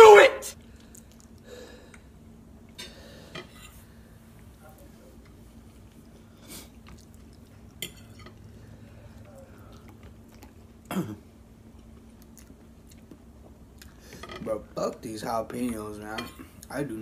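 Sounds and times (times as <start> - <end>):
quiet chewing: 0.6 - 2.8, 4.7 - 10.9, 11.6 - 14.3.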